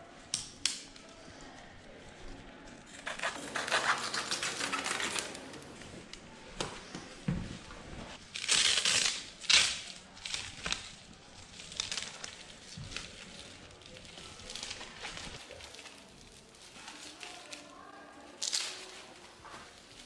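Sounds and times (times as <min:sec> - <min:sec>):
cloth ripping: 0:08.3 - 0:10.5.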